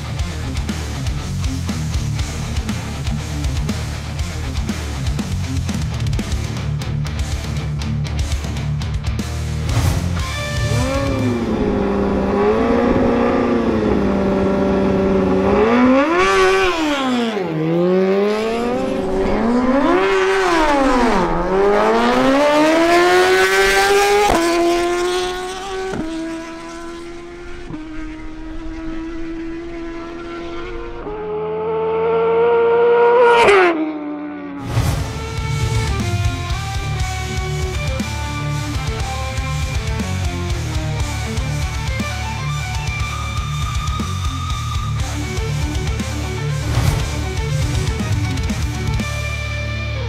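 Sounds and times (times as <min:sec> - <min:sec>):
motorcycle engine accelerating: 0:08.2 - 0:50.0.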